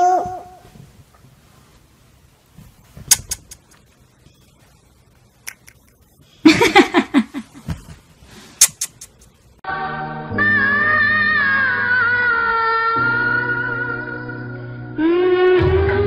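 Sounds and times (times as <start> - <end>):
sharp clicks: 5.5 - 6.0
music: 9.6 - 16.0.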